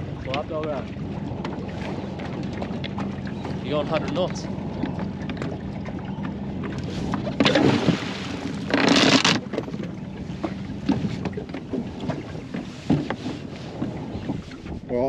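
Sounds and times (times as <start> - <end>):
wind on microphone: 0.0 - 15.0
anchor splashing into water: 6.6 - 14.5
anchor chain and rope knocking: 7.1 - 12.2.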